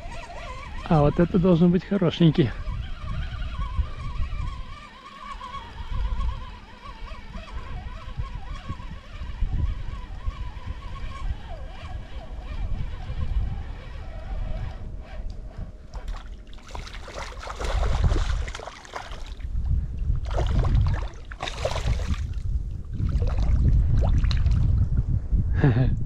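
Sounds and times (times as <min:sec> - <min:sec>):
wind buffeting microphone: 0:00.0 - 0:26.0
water splashing and sloshing: 0:15.8 - 0:19.5, 0:20.2 - 0:24.8.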